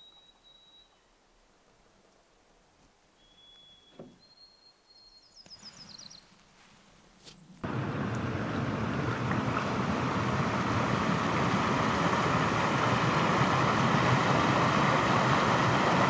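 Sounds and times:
water rushing over rocks: 7.6s - 16.0s.

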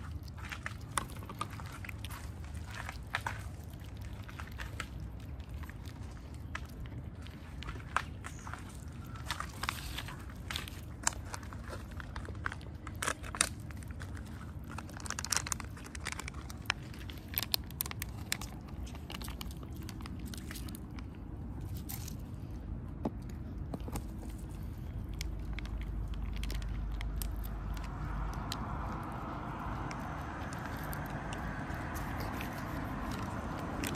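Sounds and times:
cats crunching dry food: 0.0s - 33.9s
low rumble: 13.7s - 33.9s.

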